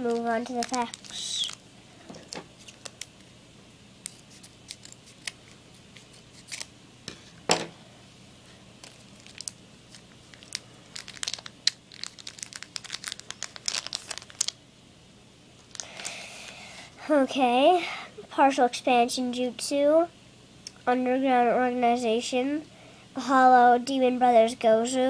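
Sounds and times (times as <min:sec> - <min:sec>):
wrapper tearing and crinkling: 0:00.0 - 0:01.6, 0:02.6 - 0:03.2, 0:04.1 - 0:06.7, 0:08.8 - 0:14.6, 0:15.7 - 0:16.2.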